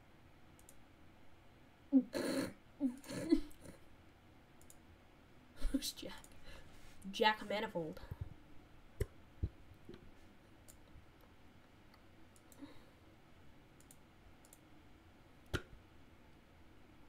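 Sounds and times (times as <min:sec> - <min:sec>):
computer mouse clicks: 0:00.6 - 0:00.8, 0:04.6 - 0:04.8, 0:11.9 - 0:12.7, 0:13.8 - 0:14.7.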